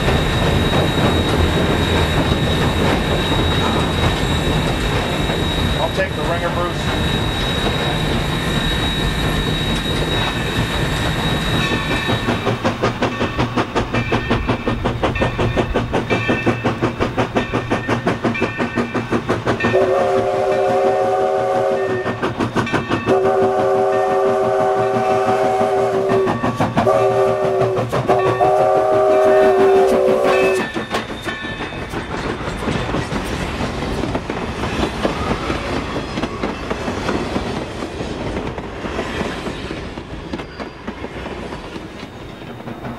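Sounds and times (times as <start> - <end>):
wheels clacking over rail joints: 0.0 - 20.6, 26.0 - 42.9
chime steam whistle: 0.0 - 32.0
steam locomotive exhaust beat: 0.0 - 42.9.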